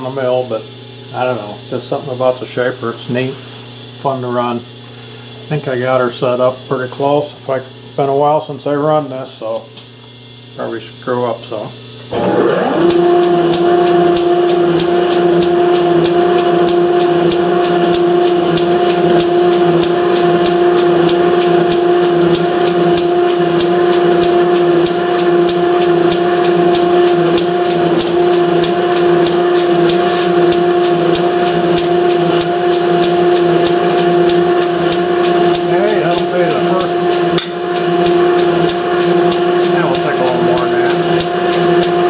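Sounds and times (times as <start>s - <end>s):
metal shaper motor whine: 11.9s - 42.0s.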